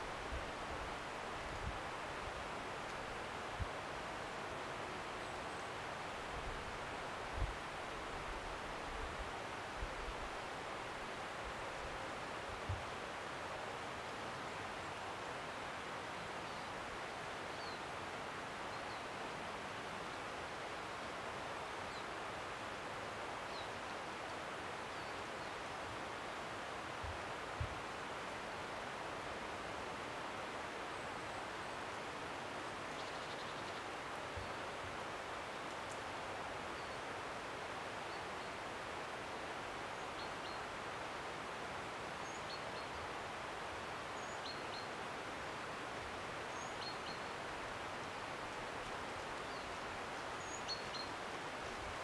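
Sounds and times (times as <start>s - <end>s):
woodland rushing hiss: 0.0s - 52.0s
faint bird chirps: 32.9s - 34.6s, 44.1s - 45.0s, 46.5s - 47.4s, 49.4s - 51.2s.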